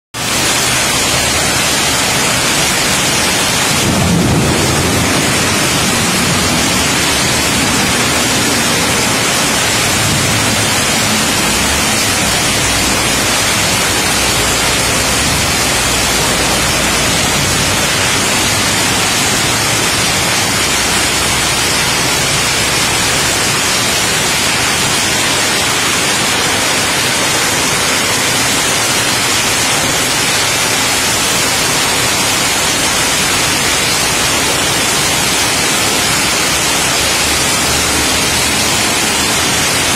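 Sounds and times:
heavy rain pouring: 0:00.2 - 0:39.9
low rumble: 0:02.5 - 0:23.8.

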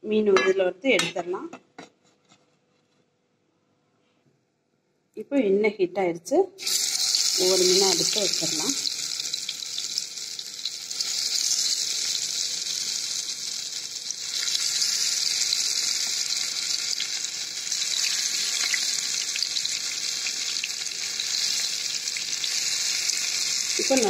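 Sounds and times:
fish sizzling in hot oil: 0:06.6 - 0:24.0.

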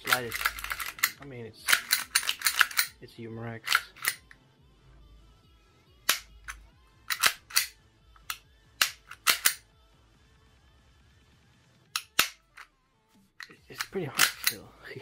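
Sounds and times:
pistol slide and trigger clicks: 0:00.0 - 0:03.0, 0:03.6 - 0:04.4, 0:06.1 - 0:09.6, 0:12.0 - 0:12.7, 0:13.4 - 0:14.6.

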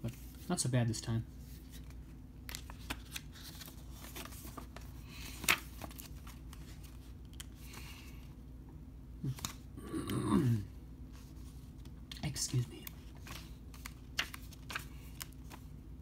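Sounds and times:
paper pages turning: 0:01.5 - 0:07.8, 0:09.2 - 0:09.6, 0:11.1 - 0:15.7.

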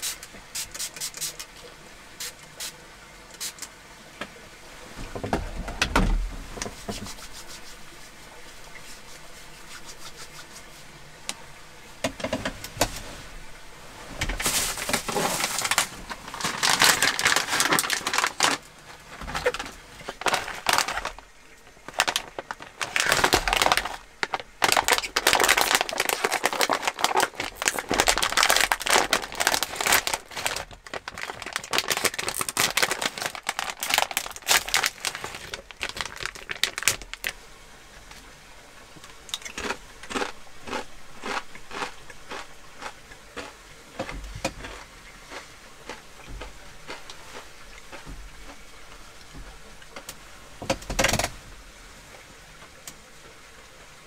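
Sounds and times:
foil snack bag crinkling: 0:14.4 - 0:37.4, 0:39.4 - 0:43.5.

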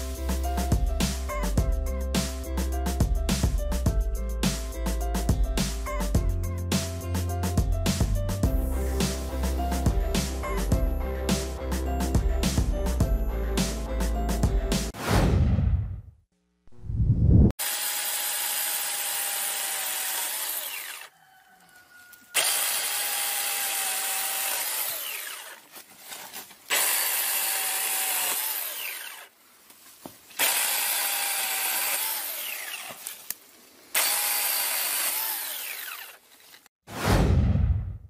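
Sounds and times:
chainsaw cutting branches: 0:17.6 - 0:21.1, 0:22.2 - 0:29.4, 0:30.3 - 0:36.7.

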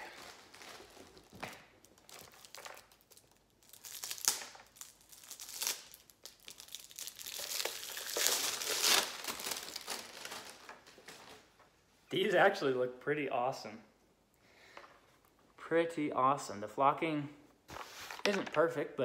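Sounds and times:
plastic wrapping crinkling: 0:00.0 - 0:11.6.

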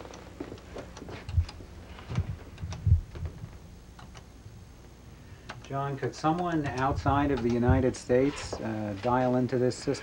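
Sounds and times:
dull low thumps: 0:02.1 - 0:03.6.

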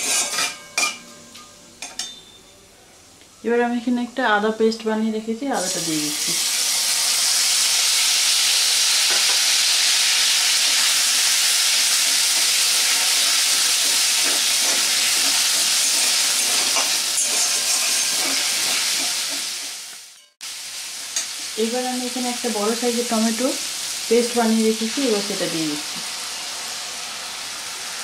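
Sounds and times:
metal spatula scraping: 0:00.0 - 0:01.2, 0:12.0 - 0:20.4
paste sizzling in hot oil: 0:05.6 - 0:28.0.

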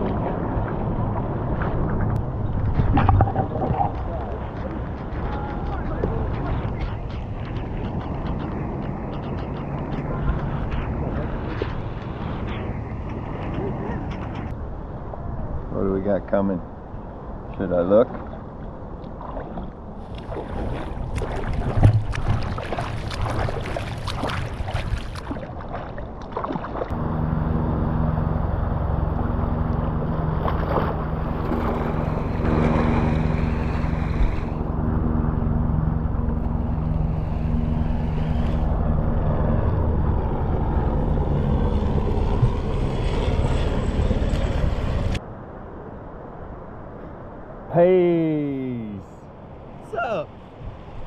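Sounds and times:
low rumble with hum: 0:00.0 - 0:15.7, 0:18.2 - 0:47.6
water splashing against camera: 0:01.5 - 0:12.3, 0:19.0 - 0:26.9.

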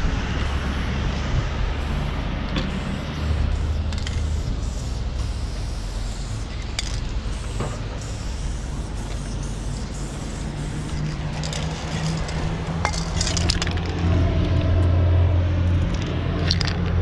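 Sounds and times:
engine running: 0:00.0 - 0:17.0
low traffic rumble: 0:00.0 - 0:17.0
spray-paint can hissing: 0:00.4 - 0:01.0, 0:01.8 - 0:12.4.

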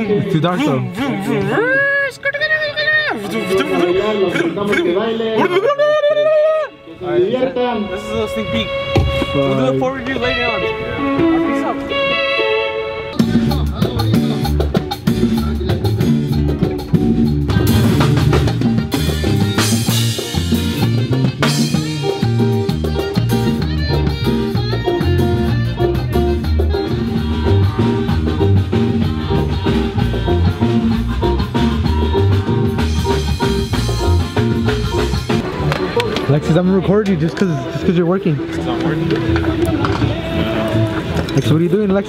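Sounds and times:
live band playing: 0:00.0 - 0:42.0.

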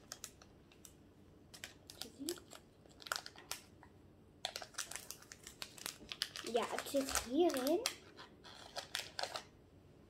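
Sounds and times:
foil packet crinkling: 0:01.5 - 0:03.7, 0:04.4 - 0:09.5.

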